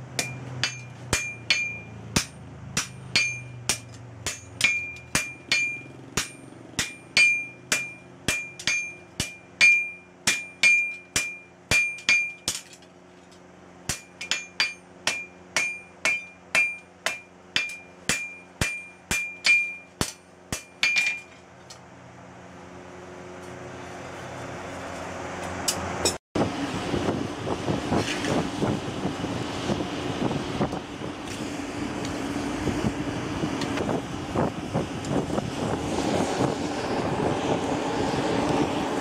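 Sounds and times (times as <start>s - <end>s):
hammer striking anvil: 0.1s - 12.8s, 13.9s - 21.4s
rushing noise: 25.9s - 39.0s.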